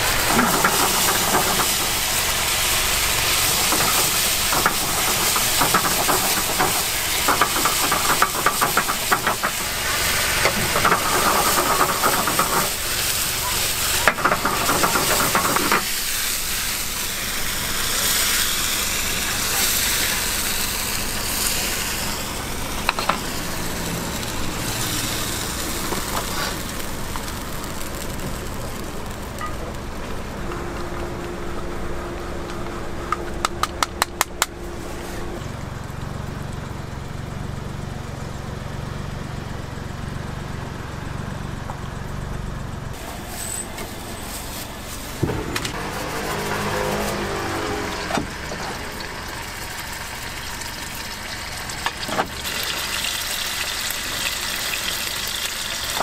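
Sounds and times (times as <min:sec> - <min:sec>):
steak sizzling in hot oil: 0:00.0 - 0:29.2, 0:48.9 - 0:56.0
steaming pasta pan sizzling: 0:00.0 - 0:32.1, 0:42.9 - 0:56.0
steady low engine hum: 0:00.0 - 0:56.0.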